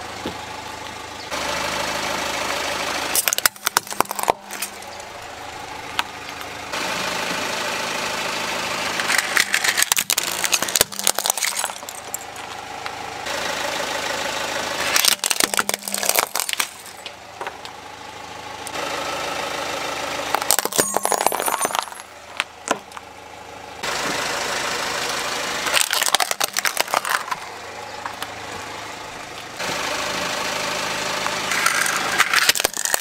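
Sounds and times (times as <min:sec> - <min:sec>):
car engine idling: 0:00.0 - 0:33.0
tyre crushing plastic objects: 0:03.2 - 0:04.8, 0:09.1 - 0:12.4, 0:14.9 - 0:17.1, 0:20.3 - 0:23.0, 0:25.7 - 0:27.5, 0:31.6 - 0:33.0.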